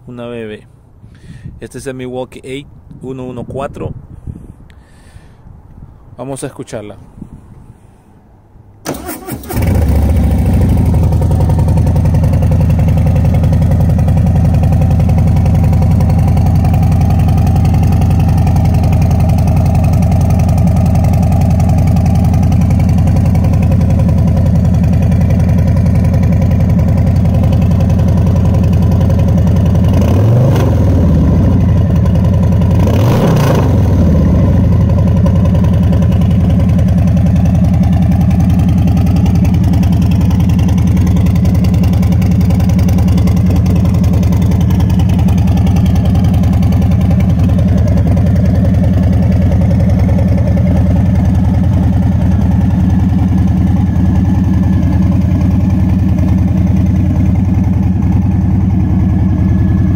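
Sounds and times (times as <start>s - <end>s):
motorcycle engine starting and idling: 8.8s - 59.9s.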